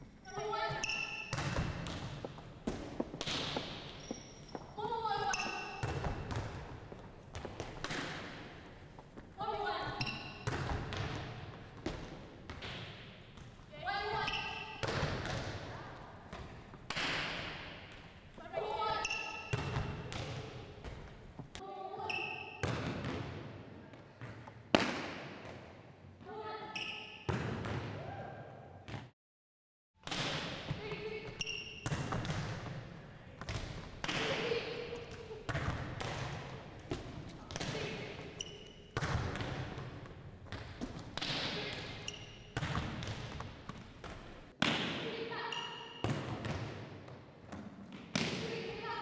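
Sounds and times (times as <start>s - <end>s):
sneakers squeaking on hardwood: 0.2s - 7.8s, 30.8s - 32.2s, 38.3s - 39.0s, 41.9s - 42.8s
volleyball hits echoing: 0.2s - 8.8s, 9.4s - 25.9s, 27.0s - 28.3s, 30.0s - 48.9s
sneaker squeaks on hardwood: 0.3s - 1.5s, 3.9s - 6.0s, 14.2s - 14.8s, 26.7s - 27.3s, 31.0s - 32.0s, 42.0s - 42.6s.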